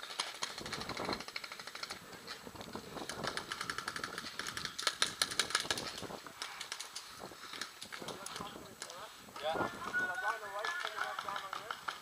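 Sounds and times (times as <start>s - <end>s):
paintball markers firing: 10.1s - 12.0s.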